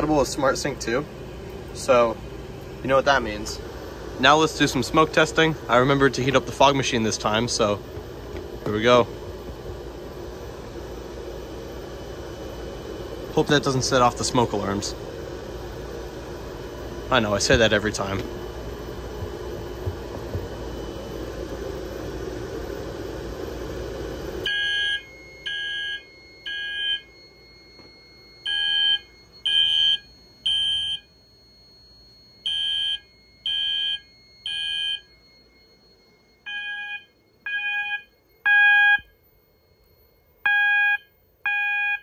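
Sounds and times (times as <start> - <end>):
fire alarm horns beeping: 24.4 - 42.0.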